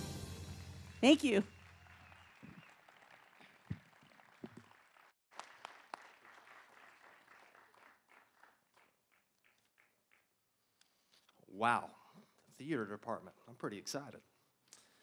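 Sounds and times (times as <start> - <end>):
audience applause: 0.6 - 10.0.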